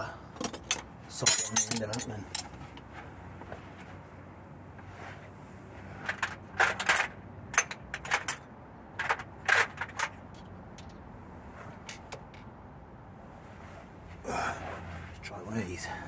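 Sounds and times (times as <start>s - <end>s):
metal tools clinking: 0.4s - 2.6s, 6.2s - 11.0s.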